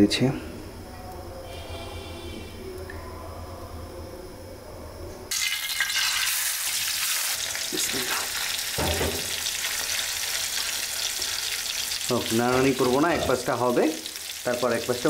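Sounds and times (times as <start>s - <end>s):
fish sizzling in oil: 5.3s - 15.0s
spatula stirring in pan: 9.2s - 13.6s.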